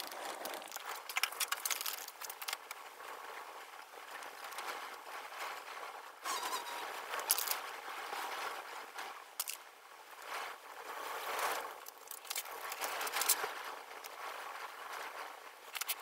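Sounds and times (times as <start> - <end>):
marker squeaking on whiteboard: 6.3 - 6.9.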